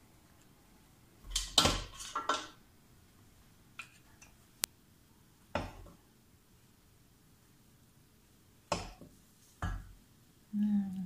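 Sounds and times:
plates and cutlery clattering: 1.3s - 2.6s.

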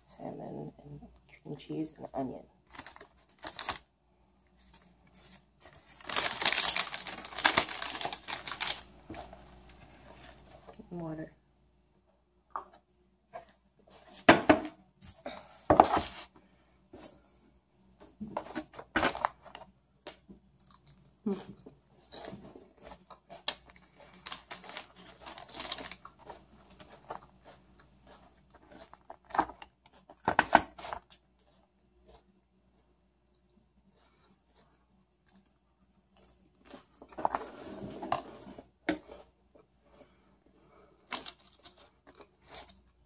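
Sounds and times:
paper and plastic wrap rustling: 2.7s - 3.8s, 4.6s - 10.8s, 15.8s - 16.3s, 22.1s - 27.3s.

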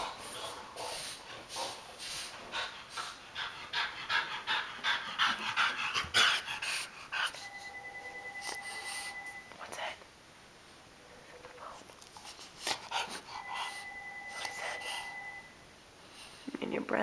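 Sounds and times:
dog panting hard: 0.0s - 7.4s, 12.2s - 13.9s.

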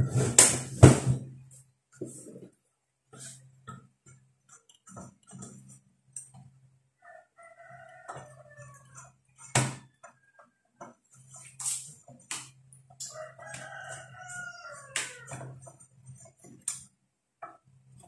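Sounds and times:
rooster crowing: 7.0s - 9.1s, 13.0s - 15.6s.

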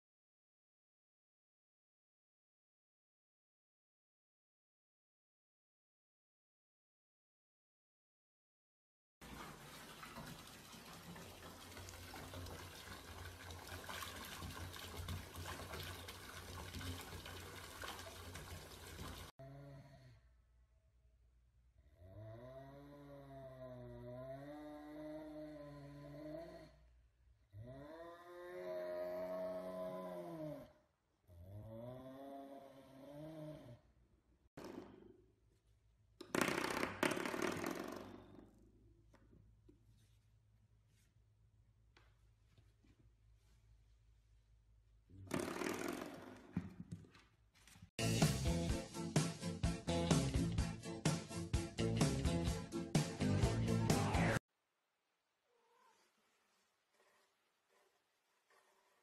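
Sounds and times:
tap water pouring into tub: 9.2s - 19.3s.

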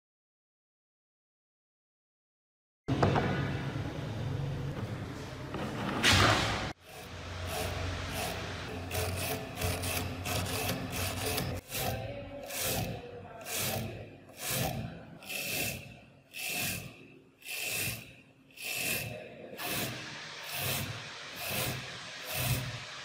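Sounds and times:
brush scrubbing metal: 6.8s - 23.0s.

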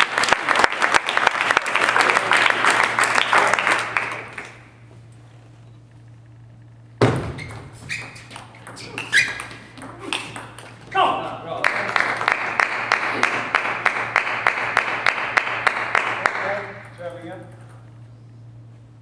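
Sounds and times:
spectators applauding: 0.0s - 4.7s, 11.4s - 16.8s
low hum: 3.8s - 11.4s, 12.8s - 19.0s
table tennis ball pinging: 7.0s - 10.9s.

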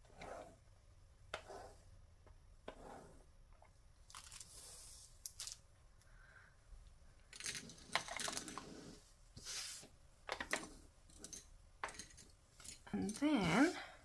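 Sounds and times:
rings sliding on tabletop: 0.0s - 0.6s, 1.3s - 1.9s, 2.6s - 3.3s, 7.4s - 12.8s.

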